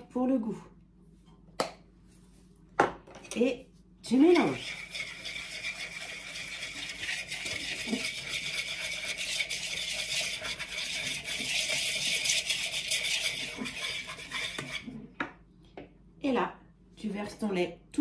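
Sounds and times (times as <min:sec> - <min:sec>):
whisk scraping a plastic bowl: 0:04.1 - 0:15.1.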